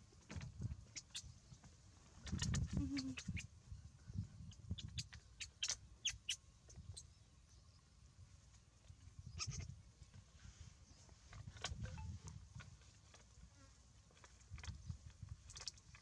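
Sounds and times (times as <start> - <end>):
baby monkey squeaking: 2.2 - 3.5.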